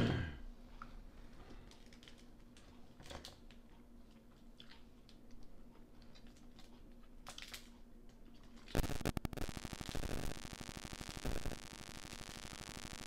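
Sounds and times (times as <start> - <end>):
low steady hum: 6.8 - 13.0
burst of static noise: 8.7 - 13.0.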